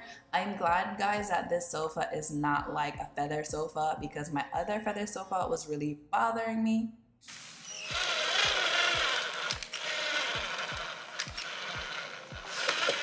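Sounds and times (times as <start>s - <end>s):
background music with low beat: 0.5s - 5.7s, 8.0s - 13.0s
cordless drill driving a screw: 7.8s - 13.0s.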